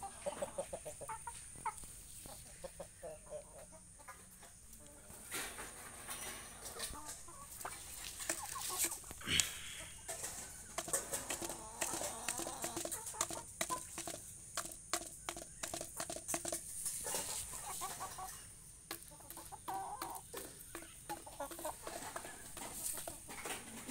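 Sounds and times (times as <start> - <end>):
chickens clucking: 0.0 - 23.9
beak pecking on plastic tray: 10.1 - 16.7, 18.9 - 23.2.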